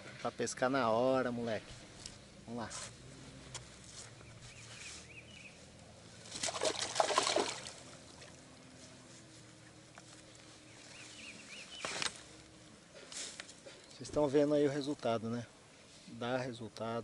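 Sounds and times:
water splashing and sloshing: 6.1 - 10.1.

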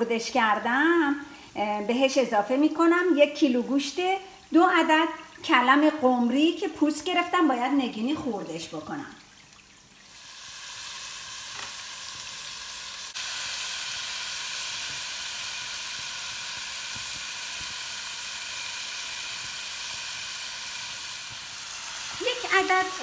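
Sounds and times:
meat sizzling in hot oil: 9.8 - 23.0.

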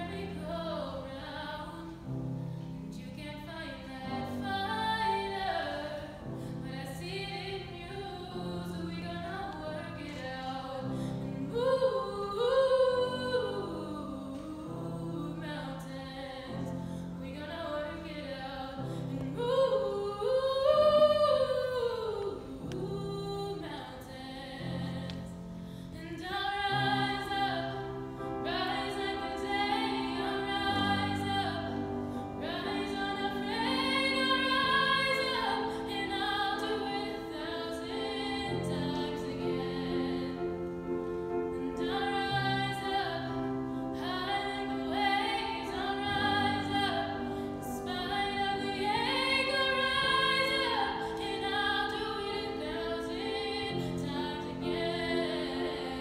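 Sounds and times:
woman singing: 0.0 - 2.2, 2.8 - 56.0.

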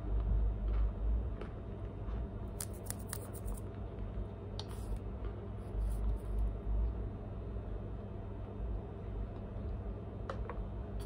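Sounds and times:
low steady hum: 0.0 - 11.0
cornstarch crackling: 2.5 - 3.6.

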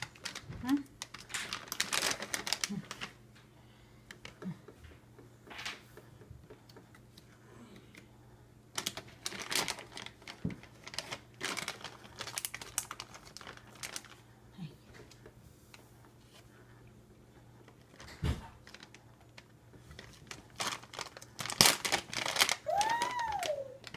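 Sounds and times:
faint motor hum: 0.0 - 23.9.

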